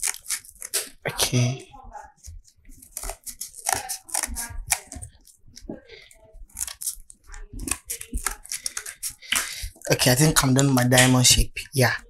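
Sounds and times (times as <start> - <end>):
scissors snipping card: 0.0 - 1.0, 2.2 - 5.8, 6.5 - 9.8.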